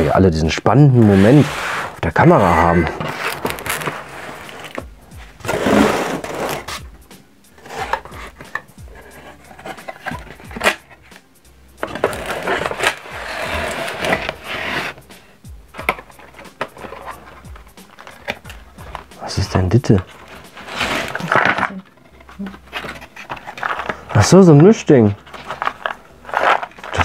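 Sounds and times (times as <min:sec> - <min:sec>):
cardboard rustling and scraping: 0:00.8 - 0:06.9, 0:07.5 - 0:11.2, 0:11.8 - 0:27.0.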